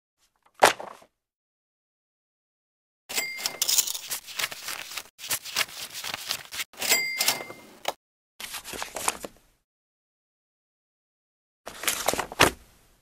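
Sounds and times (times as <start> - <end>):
book pages riffling: 3.7 - 6.7, 11.7 - 12.6.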